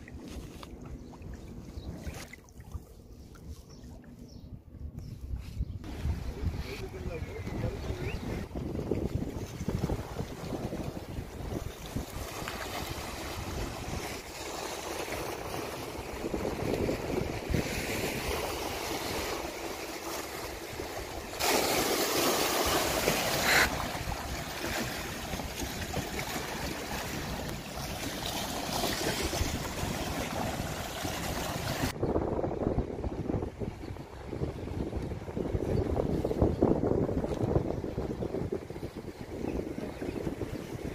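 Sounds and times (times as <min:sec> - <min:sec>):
wind buffeting microphone: 0:03.2 - 0:21.5, 0:22.6 - 0:40.9
waves splashing on rocks: 0:17.7 - 0:32.0.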